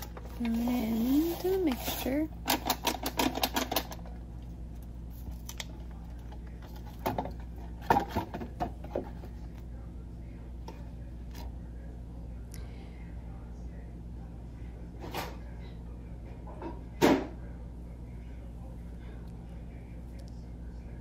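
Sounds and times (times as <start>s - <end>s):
paper and cardboard rustling: 0.0s - 3.7s
steady low hum: 0.0s - 21.0s.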